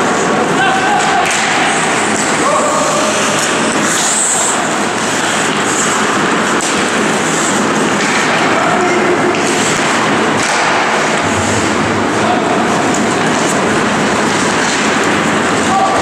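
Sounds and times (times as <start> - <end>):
distant shouts: 0.5 - 3.4, 15.6 - 16.0
stick and puck knocks: 0.9 - 2.4, 4.9 - 7.1, 7.7 - 11.7, 14.2 - 15.3
skates hissing on ice: 1.8 - 8.4.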